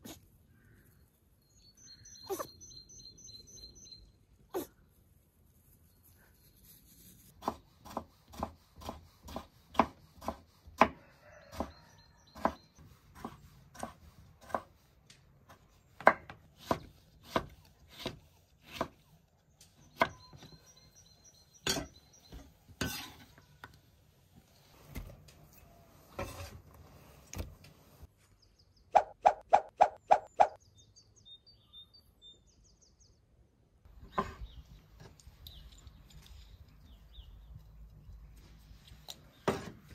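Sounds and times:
knife chopping on wooden board: 7.4s - 11.8s, 12.4s - 14.8s, 15.5s - 19.0s.

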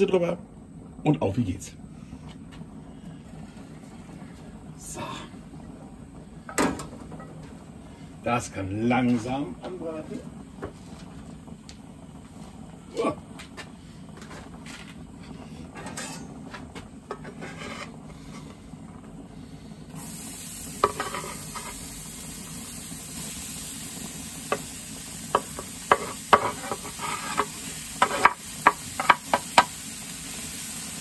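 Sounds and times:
onions sizzling on hot plate: 3.4s - 31.0s
metal spatula scraping and tapping: 17.1s - 18.0s, 20.8s - 21.8s, 25.4s - 29.7s.

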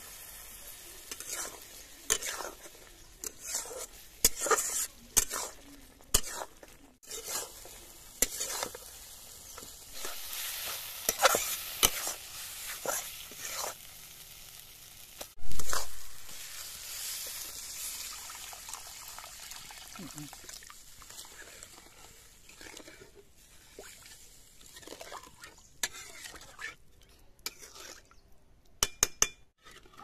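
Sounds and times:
food sizzling in a pan: 0.0s - 26.2s
spoon scraping a pan: 1.0s - 13.9s, 15.4s - 17.4s, 21.1s - 28.2s, 28.8s - 30.0s.

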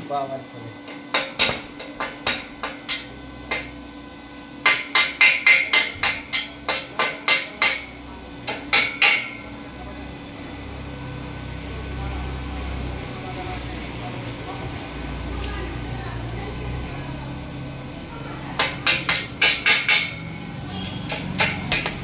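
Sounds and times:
welding electrode tapping on steel: 0.8s - 3.8s, 4.6s - 9.5s, 18.6s - 22.0s.

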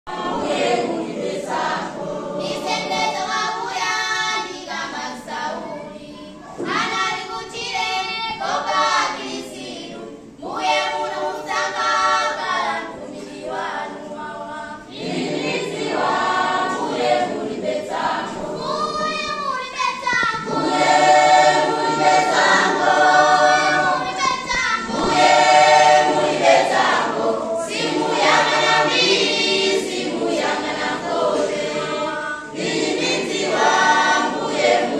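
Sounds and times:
children's choir singing: 0.1s - 34.9s.

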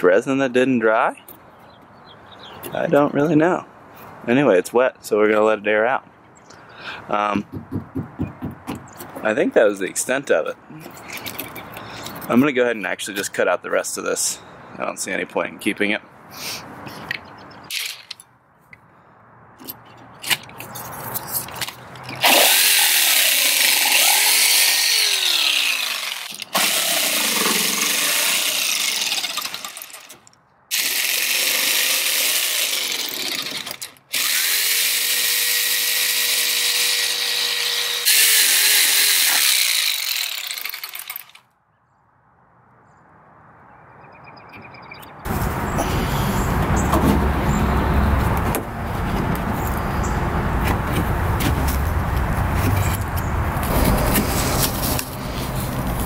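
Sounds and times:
power tool cutting fiberglass: 22.2s - 41.4s.

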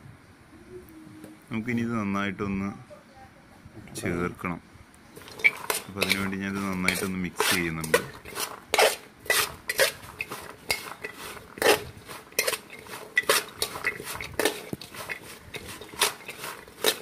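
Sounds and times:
mango pieces clattering in steel bowl: 5.2s - 17.0s.

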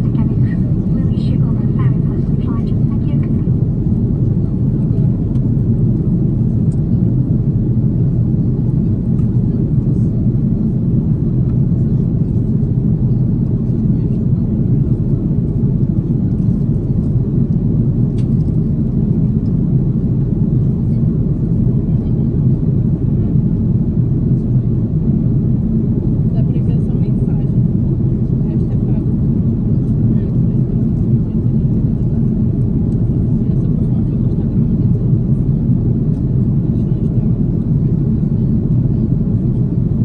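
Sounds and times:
airplane cabin rumble: 0.0s - 40.0s.

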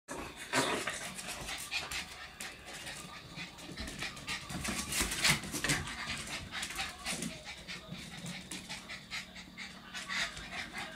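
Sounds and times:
puppy panting: 0.6s - 10.9s.

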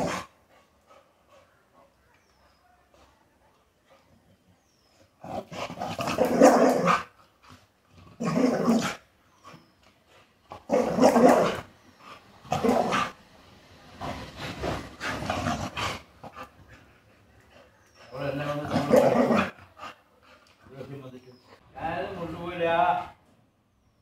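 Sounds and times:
puppy grumbling barks: 6.0s - 7.1s, 10.7s - 11.6s, 18.6s - 19.6s.

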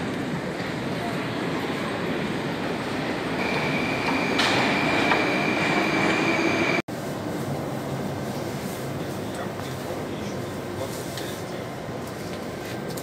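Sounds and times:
metro station rumble: 0.0s - 13.0s
high steady squeal: 3.4s - 6.8s.

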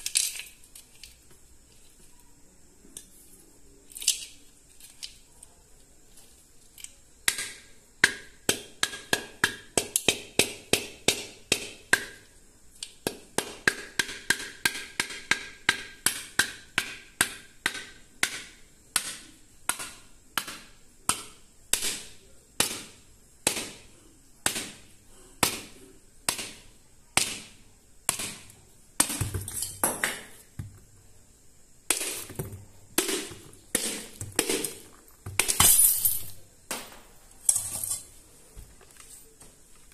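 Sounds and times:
clay cracking and breaking: 0.0s - 2.1s, 31.8s - 38.0s.

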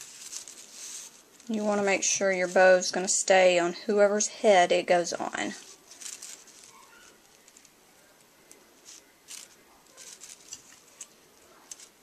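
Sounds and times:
faint rustles and light taps: 5.5s - 12.0s.

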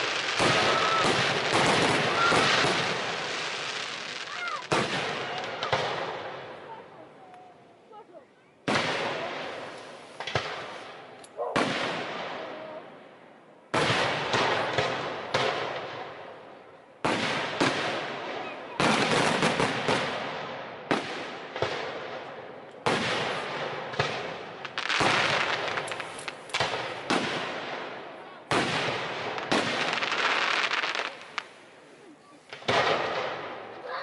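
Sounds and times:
firework shells bursting: 23.9s - 27.4s.

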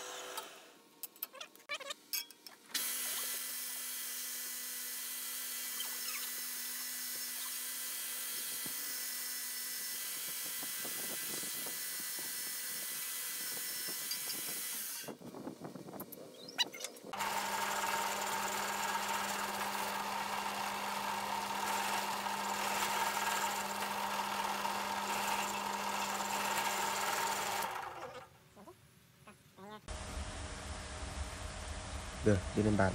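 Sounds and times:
belt grinder motor running: 17.2s - 28.3s
drill press drilling wood: 17.2s - 28.3s.

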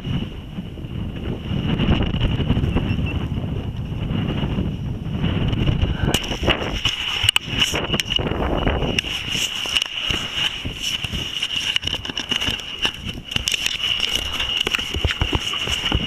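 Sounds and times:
wind buffeting microphone: 0.0s - 16.0s
crackling clicks: 6.1s - 16.0s.

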